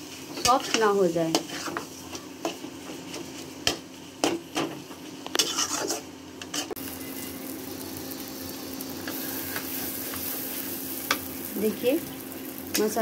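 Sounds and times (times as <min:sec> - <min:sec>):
frying mixture sizzling: 0:00.0 - 0:13.0
metal spatula scraping a pan: 0:00.3 - 0:04.3, 0:05.4 - 0:06.8.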